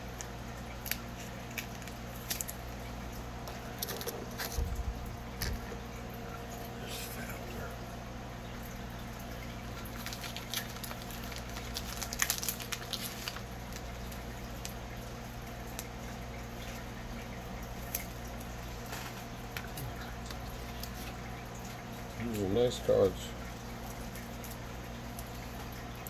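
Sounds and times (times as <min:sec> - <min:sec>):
steady low hum: 0:00.0 - 0:26.0
cards and wrappers rustling: 0:00.8 - 0:02.7, 0:03.5 - 0:05.8, 0:09.8 - 0:14.8, 0:18.8 - 0:21.2.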